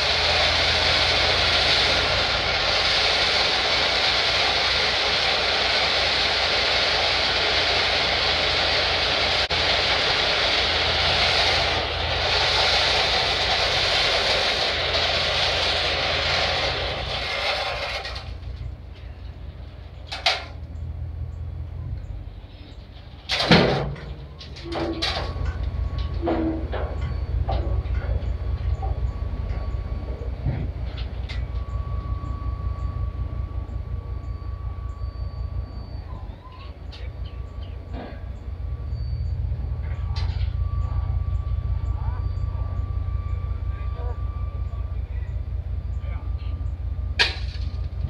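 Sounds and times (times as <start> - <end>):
truck engine idling: 0.0 - 48.0
loud metal clank: 23.2 - 31.8, 47.1 - 48.0.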